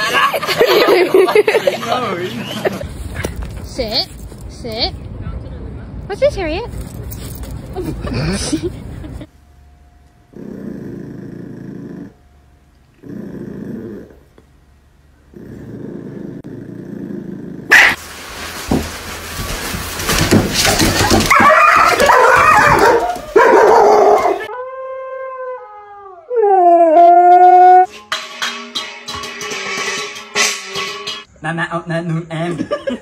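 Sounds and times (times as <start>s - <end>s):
dogs barking harshly: 17.7s - 18.0s, 20.8s - 24.5s
dogs howling: 21.3s - 27.9s.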